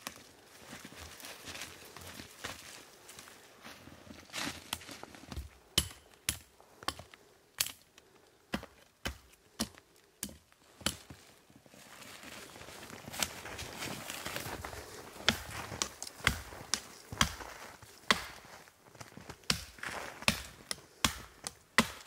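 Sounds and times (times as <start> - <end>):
branches rustling: 0.0 - 7.2, 9.9 - 21.0
hatchet chopping wood: 5.4 - 7.8, 8.5 - 11.1, 15.2 - 17.5, 18.1 - 18.4, 19.4 - 22.0.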